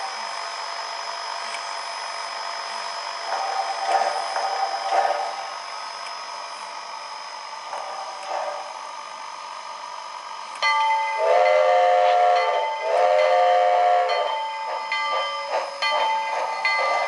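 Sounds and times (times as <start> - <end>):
steam hiss: 11.0 - 17.0.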